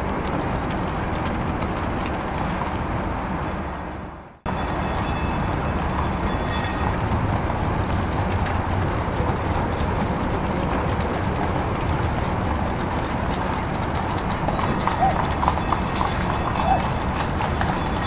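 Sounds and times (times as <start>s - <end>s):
street traffic bustle: 0.0s - 18.0s
small bell dinging: 2.4s - 3.1s, 5.8s - 7.0s, 10.7s - 11.9s, 15.4s - 16.2s.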